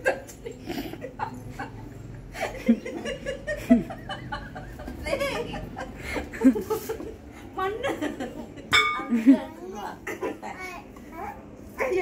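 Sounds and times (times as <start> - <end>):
people laughing: 0.0 - 9.4.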